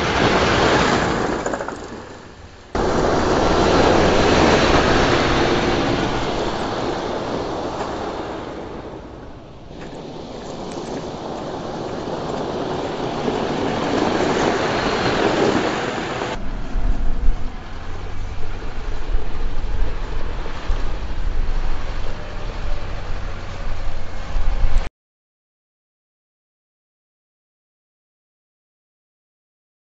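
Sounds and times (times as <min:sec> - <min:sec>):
truck engine and tyre noise: 0:00.0 - 0:24.9
wind buffeting microphone: 0:02.8 - 0:24.9.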